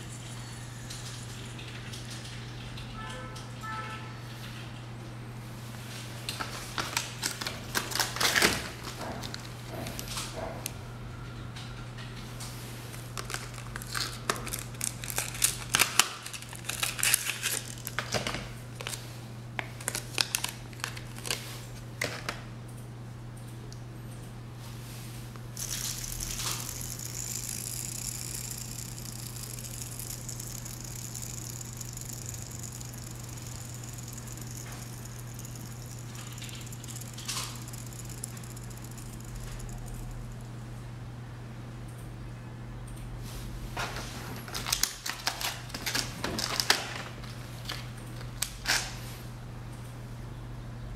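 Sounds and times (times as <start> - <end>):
packaging crinkling and clicking: 6.3 - 10.3, 12.9 - 22.4, 44.5 - 49.0
fidget spinner whirring: 25.4 - 40.7.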